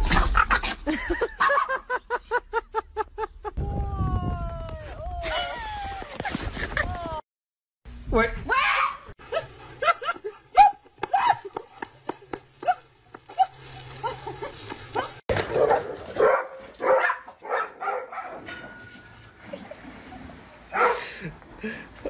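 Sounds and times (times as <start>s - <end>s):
dogs barking and yipping: 0.2s - 1.8s, 9.2s - 19.1s, 20.7s - 21.1s.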